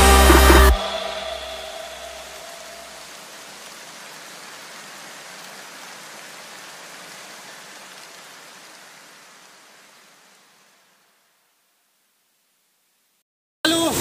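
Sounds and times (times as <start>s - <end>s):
waterfall rushing: 0.0s - 10.9s.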